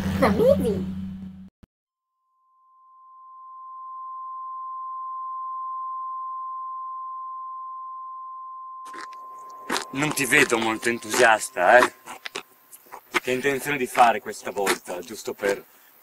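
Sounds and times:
high-pitched electronic tone: 0:02.5 - 0:13.4.

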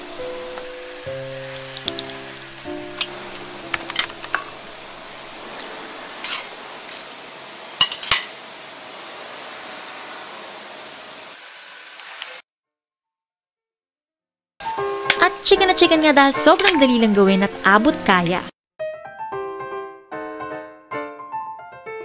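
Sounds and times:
metal spoon clinking on bowl: 0:16.5 - 0:16.9.

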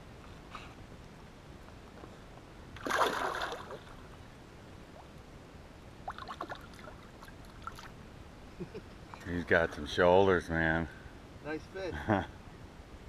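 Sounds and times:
fish splashing in water: 0:02.8 - 0:04.0.

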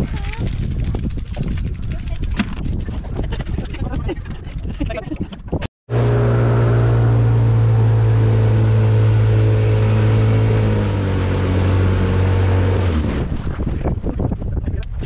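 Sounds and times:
boat motor droning: 0:05.9 - 0:13.3.

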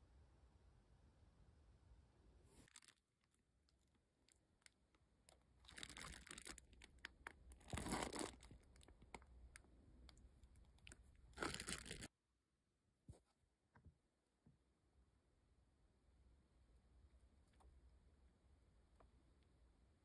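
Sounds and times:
cake crunching and crinkling: 0:02.6 - 0:12.1.

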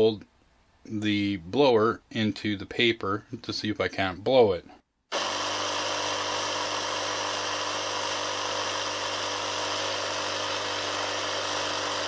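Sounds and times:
air compressor motor hum: 0:05.1 - 0:12.0.

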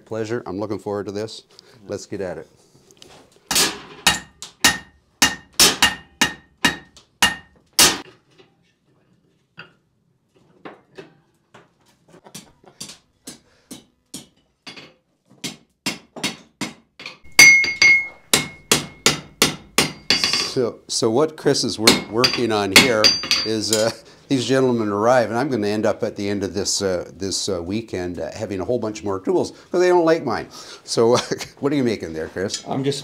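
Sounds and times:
hammer striking iron on anvil: 0:03.5 - 0:08.0, 0:15.9 - 0:20.4, 0:21.9 - 0:23.8.

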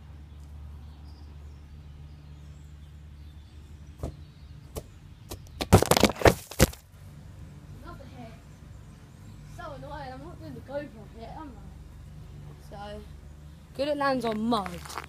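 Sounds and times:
camera knocked over rattling: 0:05.6 - 0:06.8.

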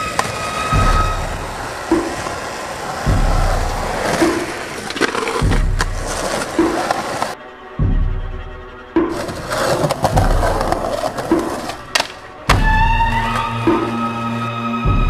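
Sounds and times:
skateboard wheels on rough tarmac: 0:00.0 - 0:07.4, 0:09.1 - 0:12.2
music with slow steady beat: 0:00.7 - 0:02.3, 0:03.1 - 0:04.6, 0:05.4 - 0:15.0.

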